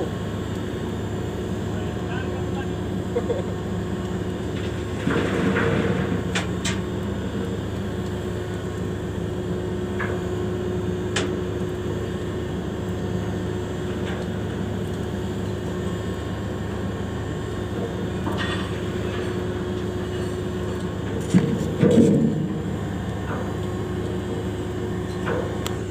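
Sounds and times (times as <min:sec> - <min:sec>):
ship machinery drone: 0:00.0 - 0:25.9.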